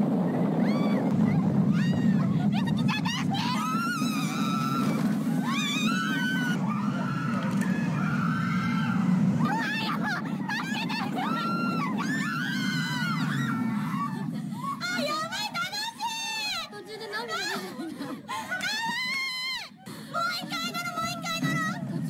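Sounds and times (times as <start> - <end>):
low rumble of ride: 0.0 - 18.1, 20.1 - 22.0
crowd screaming: 0.3 - 16.6.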